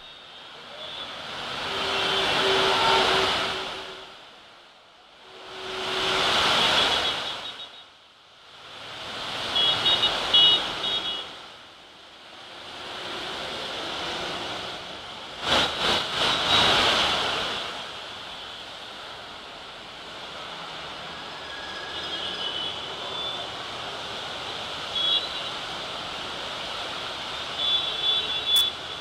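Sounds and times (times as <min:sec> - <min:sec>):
heavy rain pouring: 0:00.0 - 0:07.6, 0:08.6 - 0:11.3, 0:12.1 - 0:29.0
traffic passing: 0:00.0 - 0:29.0
short high-pitched beeps: 0:28.4 - 0:28.8.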